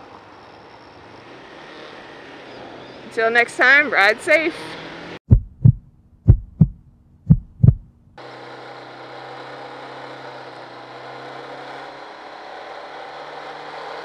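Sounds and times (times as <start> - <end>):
heartbeat thumps: 5.2 - 8.1.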